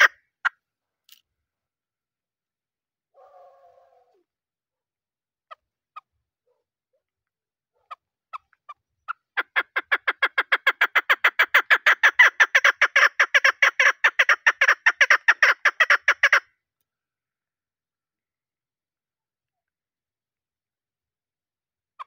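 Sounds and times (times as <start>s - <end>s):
partridge calling: 0.0s - 0.6s, 7.8s - 16.4s.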